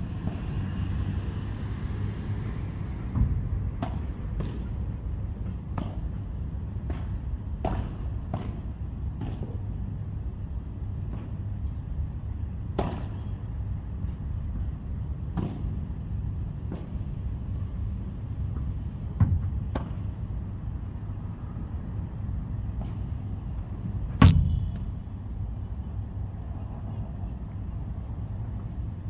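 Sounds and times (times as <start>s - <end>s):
ball struck by rackets: 6.9s - 8.6s, 12.8s - 13.2s, 15.4s - 15.7s, 24.2s - 24.9s.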